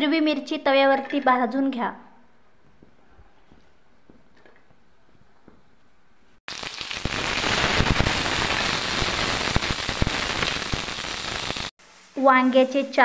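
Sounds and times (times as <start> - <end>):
chillies sizzling and popping: 6.5 - 13.0.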